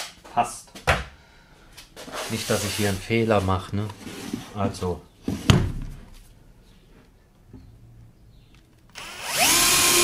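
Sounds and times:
cordless drill drilling into wood: 8.9s - 10.0s.

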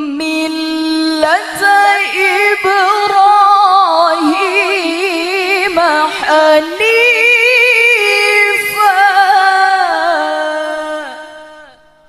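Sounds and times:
woman reciting melodically: 0.0s - 12.0s.

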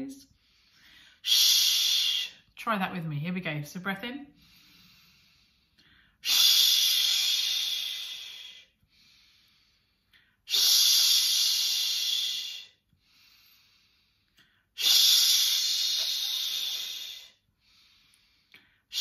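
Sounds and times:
in-breaths through nose: 4.4s - 19.0s
person exhaling shh sounds: 5.9s - 9.5s, 10.5s - 13.7s, 14.8s - 19.0s.

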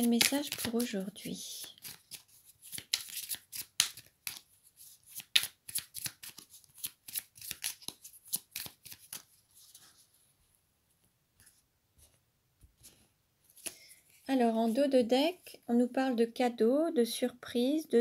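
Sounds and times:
cards being shuffled: 0.0s - 10.0s.

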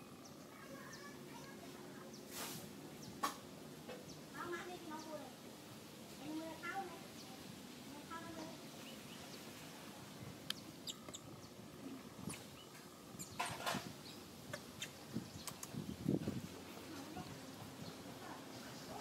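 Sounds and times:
short rustle: 2.3s - 2.8s
high chirps and ticks: 10.4s - 11.6s, 12.2s - 15.9s.

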